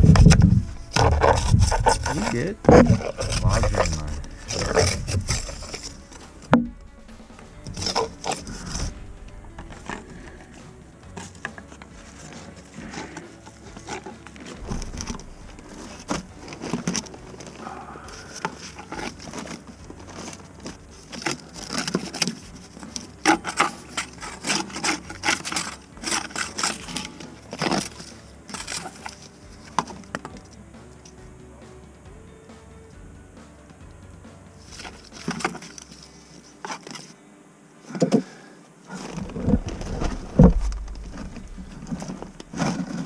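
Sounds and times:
drain cable knocking and scraping: 0.0 - 30.4, 39.0 - 43.0
low steady hum: 0.0 - 30.7, 38.7 - 43.0.

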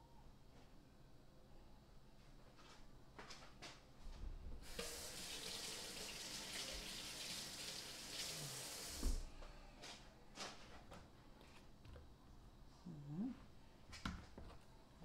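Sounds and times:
faucet running into steel sink: 4.6 - 9.2.

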